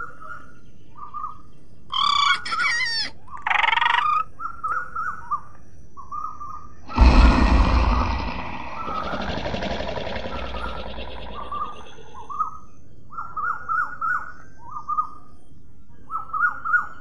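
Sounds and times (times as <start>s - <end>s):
cartoon monkey chatter: 1.9s - 4.2s
deep dinosaur roar: 6.9s - 12.3s
bird calls: 7.0s - 14.4s.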